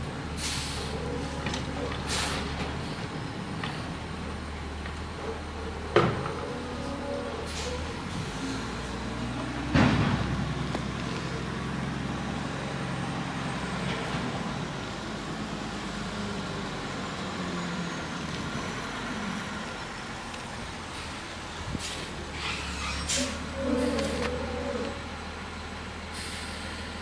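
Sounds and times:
garbage truck engine running: 0.0 - 27.0
loud bang: 9.7 - 10.5.

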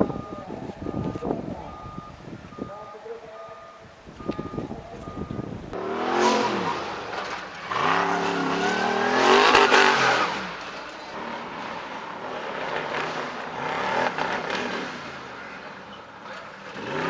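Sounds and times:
reversing alarm beeping: 0.0 - 5.6
buggy engine revving hard: 5.7 - 17.0.

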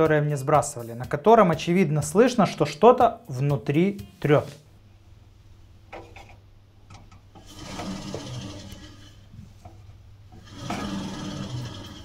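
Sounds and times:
washing machine drum turning: 6.9 - 9.0, 10.4 - 12.0
rubbing scrape inside drum: 7.4 - 12.0.

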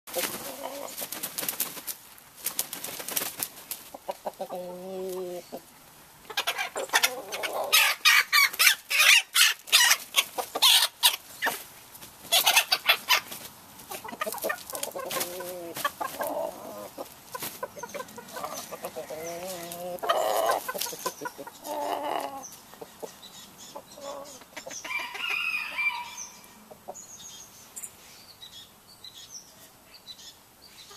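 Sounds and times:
wing flapping and scuffling: 0.1 - 4.1, 9.6 - 21.4
chickens clucking: 0.1 - 27.4
chicken squawks: 6.3 - 11.6, 12.3 - 13.3.

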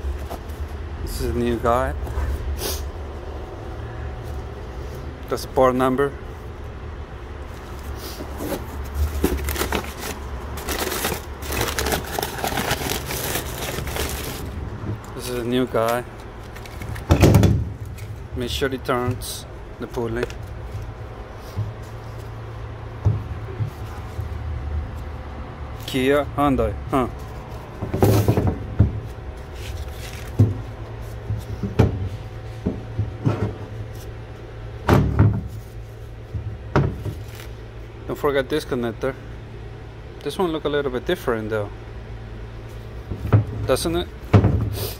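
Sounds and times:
steady low hum: 0.0 - 44.9
crinkling handling noise: 7.4 - 26.2, 26.9 - 34.6, 35.4 - 38.0.

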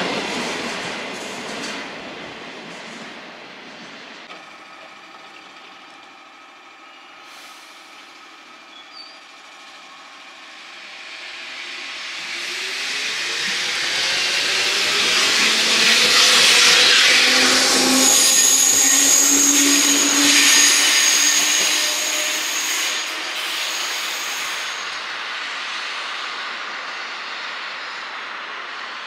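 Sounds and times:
train rail noise: 0.0 - 29.0
electric motor whine: 12.6 - 23.1.

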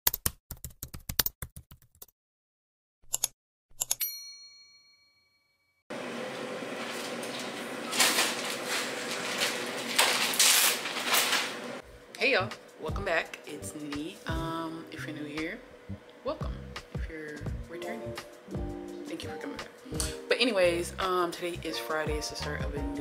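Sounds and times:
typewriter bell ding: 3.9 - 5.5
plastic bag crinkling: 6.8 - 11.8.

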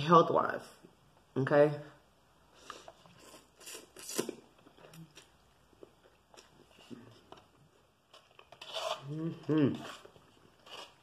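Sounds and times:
quiet chewing: 2.6 - 8.6.

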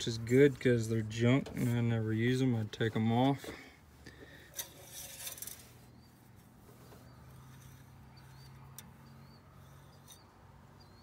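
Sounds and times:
dipstick clicks and metal rattles: 4.1 - 5.7, 7.4 - 10.3.

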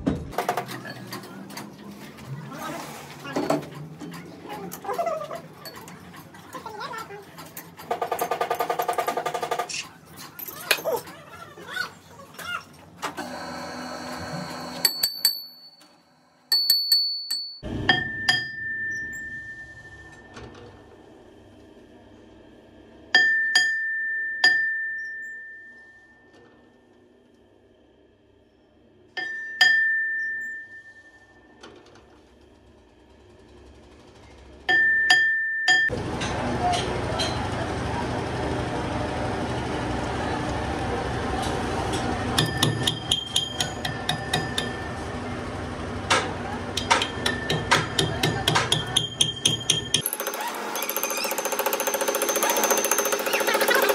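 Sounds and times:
metal taps with ringing tone: 14.8 - 15.9, 16.5 - 20.5, 23.2 - 26.4, 29.2 - 31.2, 34.7 - 35.9, 42.4 - 44.9, 46.8 - 50.1.

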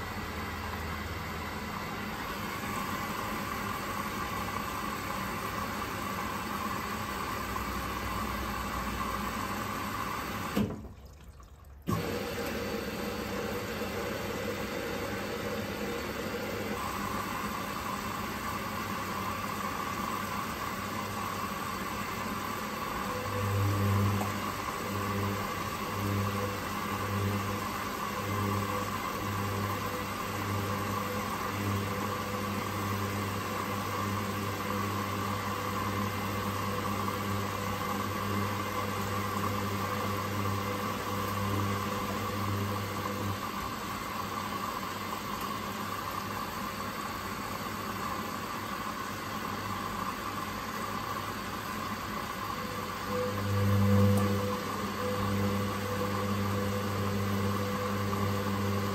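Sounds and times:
washing machine drum sloshing: 10.5 - 12.6.

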